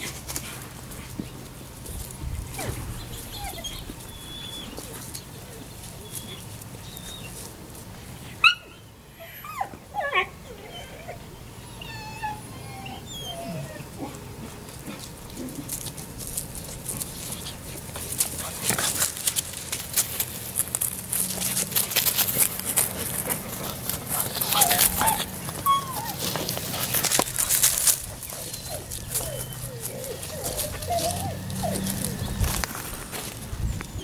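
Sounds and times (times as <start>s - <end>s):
dry leaves rustling: 0.0s - 8.4s, 13.9s - 34.0s
puppies whining and squeaking: 1.8s - 7.5s, 8.4s - 14.1s, 20.5s - 34.0s
puppy yelp: 2.5s - 5.0s, 8.4s - 14.0s, 24.2s - 26.8s, 27.5s - 32.6s.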